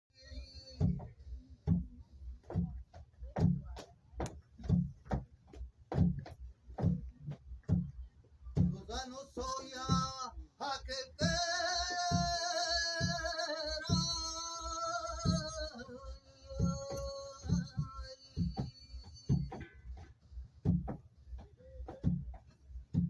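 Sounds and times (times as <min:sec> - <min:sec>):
djembe slow beat: 0:00.2 - 0:23.0
man singing wavering phrases: 0:08.8 - 0:19.5.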